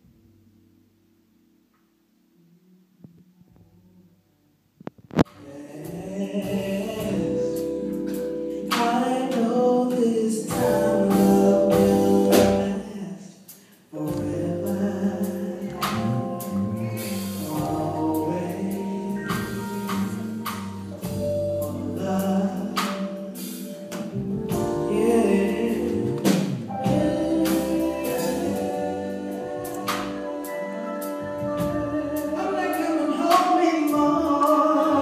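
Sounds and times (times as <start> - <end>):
live band playing: 5.3 - 35.0
woman singing soul ballad: 5.4 - 13.2, 24.5 - 35.0.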